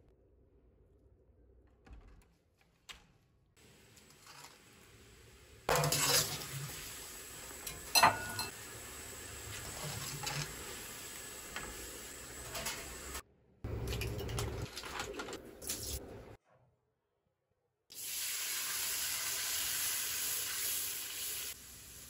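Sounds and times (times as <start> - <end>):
water boiling in a wok: 3.6 - 13.2, 18.0 - 22.0
strainer scraping and clinking on pan: 5.7 - 6.8, 7.6 - 8.5, 9.5 - 10.8, 12.4 - 13.2.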